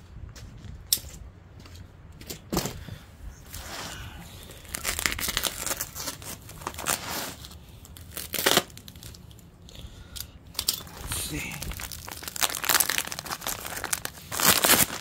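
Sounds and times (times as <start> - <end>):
plastic crinkling: 4.4 - 9.5, 10.5 - 15.0
knife slicing plastic wrapping: 8.0 - 9.1, 11.7 - 15.0.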